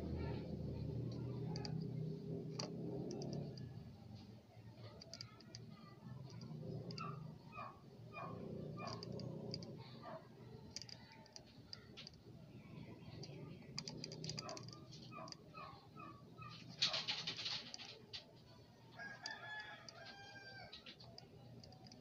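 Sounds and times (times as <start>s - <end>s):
low steady hum: 0.0s - 22.0s
sharp clicks: 1.1s - 1.9s, 2.5s - 3.7s, 4.8s - 7.2s, 8.8s - 9.7s, 10.7s - 12.2s, 13.0s - 15.5s, 16.4s - 18.3s, 20.7s - 22.0s.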